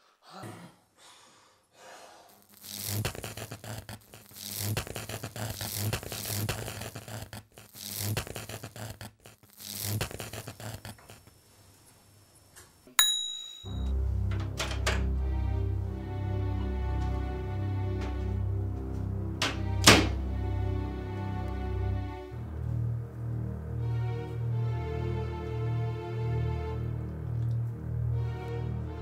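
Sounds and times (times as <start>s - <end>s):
bell-like ding: 13.0s - 13.9s
low hum: 13.6s - 29.0s
deep sustained bass notes: 13.7s - 29.0s
pulsing film score: 13.7s - 29.0s.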